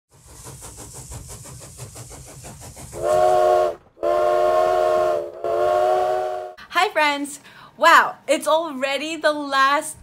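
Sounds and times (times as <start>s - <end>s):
steam locomotive chuffing: 0.1s - 6.6s
steam whistle blasts: 3.0s - 6.6s.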